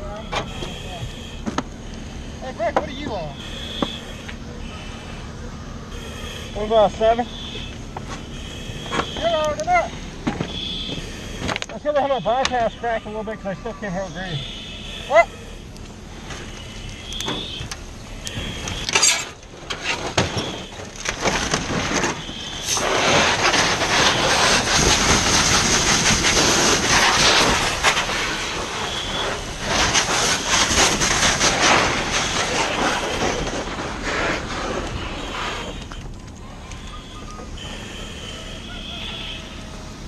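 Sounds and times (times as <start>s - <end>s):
fire hose spraying water: 17.8s - 36.2s.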